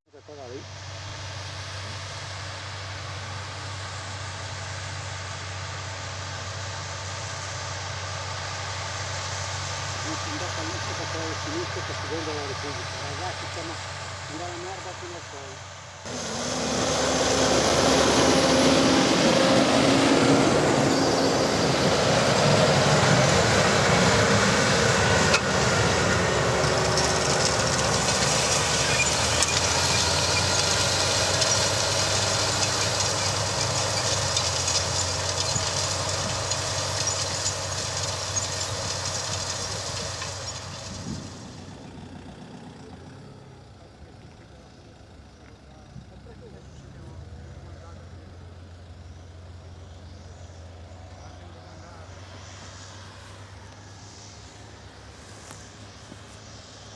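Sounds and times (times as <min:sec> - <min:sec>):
tractor diesel engine under load: 0:00.1 - 0:56.9
seed drill rattling: 0:26.4 - 0:41.2.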